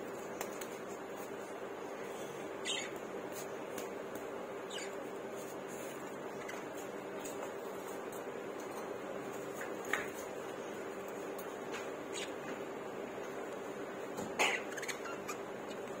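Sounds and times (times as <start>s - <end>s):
steady background hum: 0.0s - 16.0s
budgerigars chirping: 2.6s - 3.0s.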